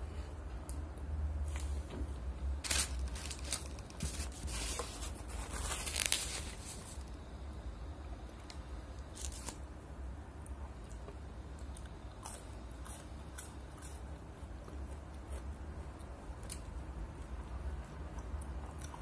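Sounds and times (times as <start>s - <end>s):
paper wrapper crinkling: 2.6s - 7.2s, 9.1s - 9.6s.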